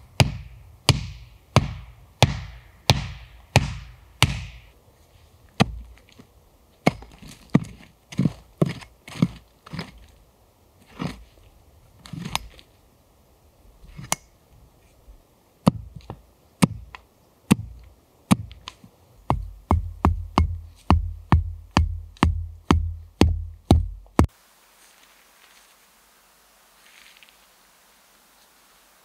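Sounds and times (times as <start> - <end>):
hatchet striking wood: 0.1 - 4.7, 5.6 - 5.8, 15.6 - 16.0, 16.6 - 18.7, 19.3 - 24.3.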